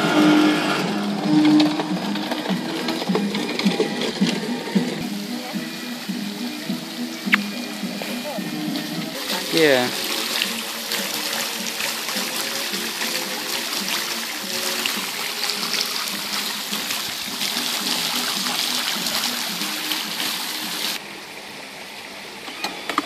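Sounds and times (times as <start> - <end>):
fountain spray splashing into pond: 5.0 - 23.0.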